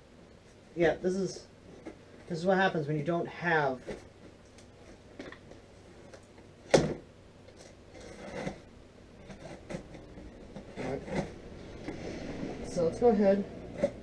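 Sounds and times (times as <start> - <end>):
cardboard scraping and rustling: 7.5 - 14.0.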